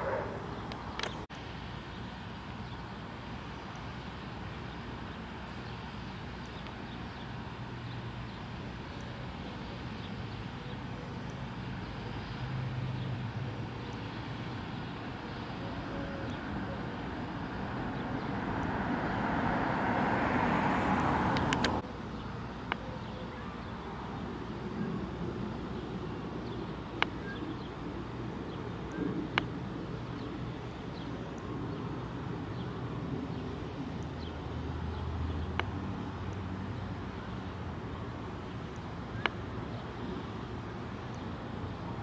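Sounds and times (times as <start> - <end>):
passing vehicle rumble: 9.4 - 42.0.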